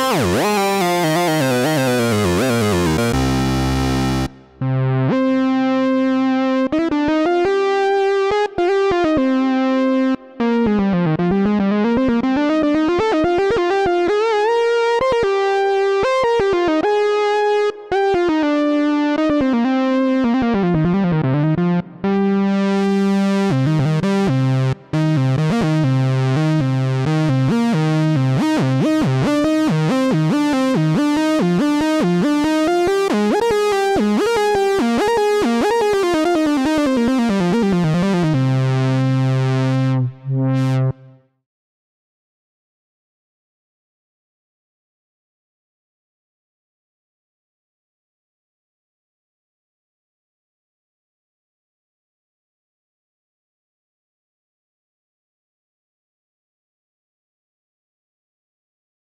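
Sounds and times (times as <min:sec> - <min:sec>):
held low synthesizer notes: 0:00.0 - 0:05.4
synthesizer melodic lead line: 0:00.0 - 0:05.8.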